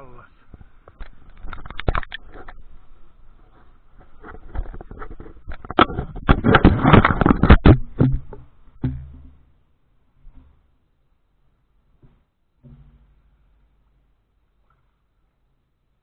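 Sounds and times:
camera handling rubbing and scraping: 0.6 - 2.6, 3.4 - 7.8.

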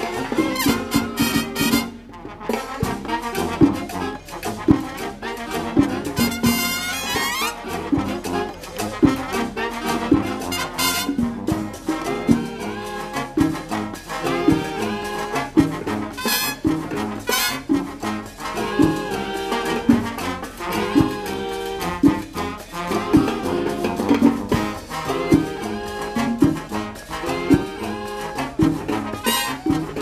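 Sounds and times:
conga percussion beat: 0.0 - 30.0
horn chords: 0.0 - 30.0.

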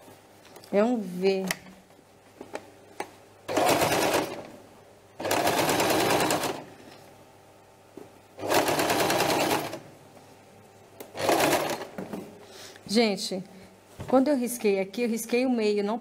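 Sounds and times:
electric sewing machine stitching: 3.5 - 4.5, 5.2 - 6.7, 8.4 - 9.9, 11.2 - 12.0.

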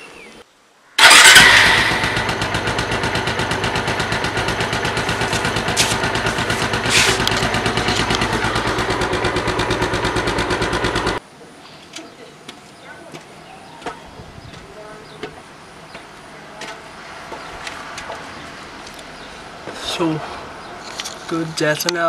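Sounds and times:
motorcycle engine idling: 1.0 - 11.2.

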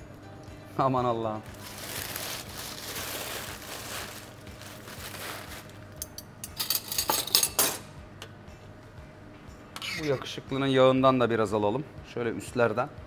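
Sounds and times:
aluminium foil crinkling: 1.4 - 6.1.

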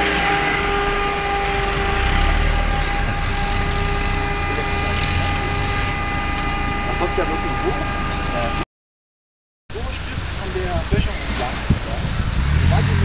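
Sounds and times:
car engine low rumble: 0.0 - 8.6, 9.7 - 13.0
steady high whine: 0.0 - 8.6.

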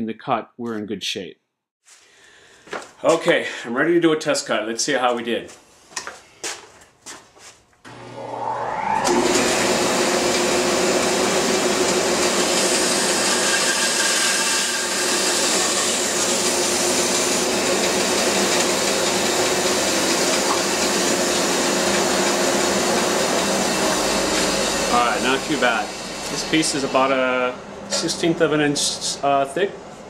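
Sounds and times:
bandsaw cutting wood: 7.9 - 28.2
bandsaw motor running: 7.9 - 28.3.

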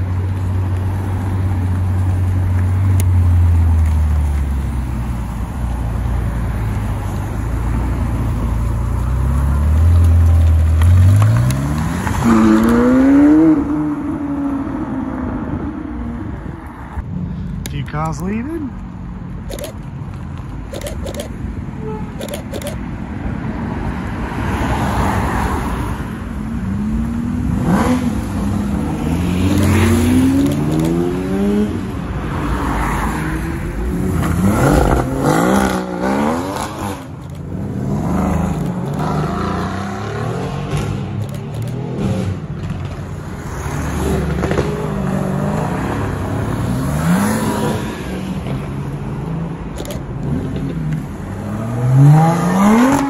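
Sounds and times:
car engines revving past: 6.4 - 15.8, 24.3 - 53.0.

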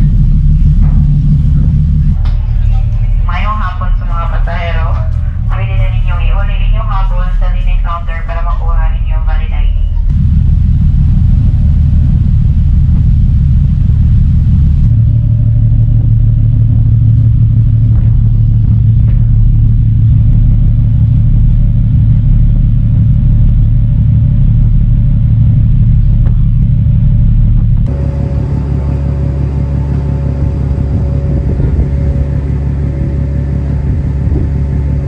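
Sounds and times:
ship engine hum: 0.0 - 35.0
wind buffeting microphone: 10.0 - 35.0.

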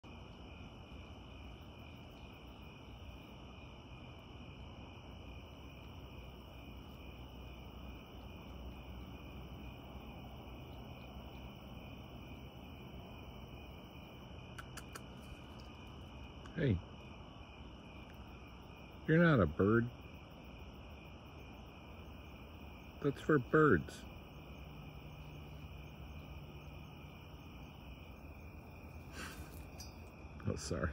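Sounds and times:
crickets chirping: 0.0 - 30.9
faint clicks: 14.5 - 15.8.

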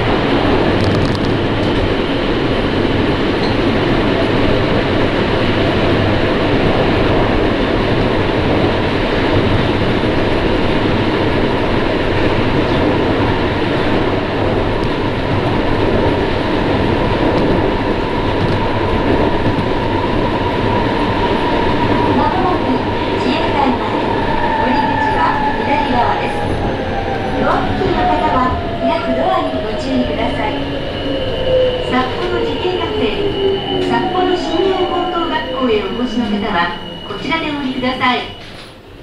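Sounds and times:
train rumble inside car: 0.0 - 30.6
train whine: 0.0 - 39.0.

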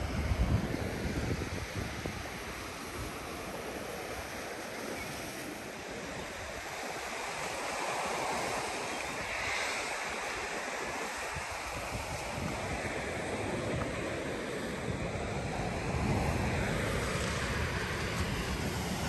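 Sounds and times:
surf washing over rocks: 0.0 - 19.0
wind rumbling on microphone: 0.0 - 19.0.

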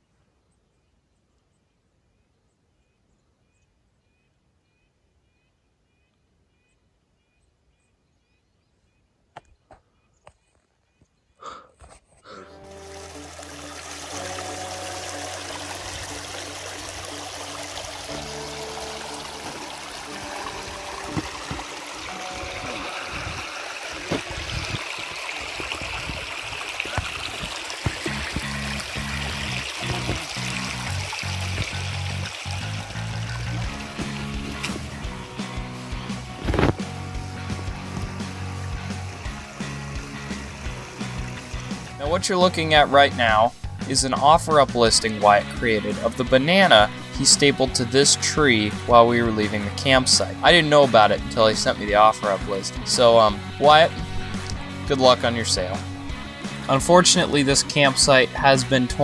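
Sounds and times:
creek trickling over stones: 11.8 - 59.0.

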